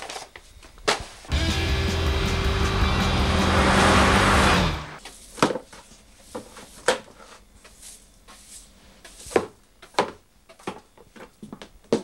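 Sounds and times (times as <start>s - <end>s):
broom sweeping floor: 3.7s - 9.6s.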